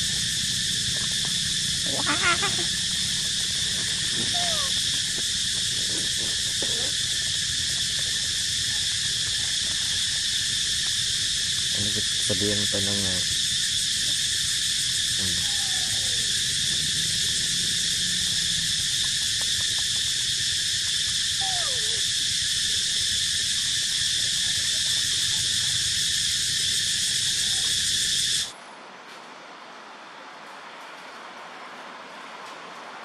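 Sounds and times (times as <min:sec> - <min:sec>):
insects chorus: 0:00.0 - 0:28.6
animal falling calls: 0:01.8 - 0:07.1, 0:15.2 - 0:16.5, 0:21.3 - 0:22.1.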